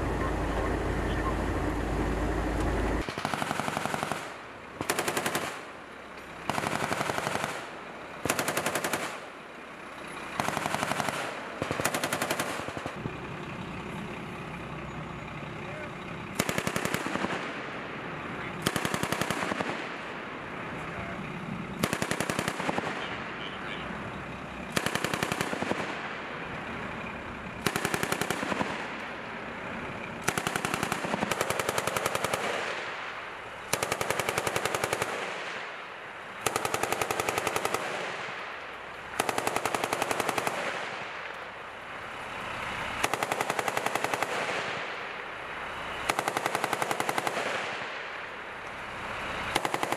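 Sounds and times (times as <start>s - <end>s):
machine gun bursts: 30.2s - 32.7s.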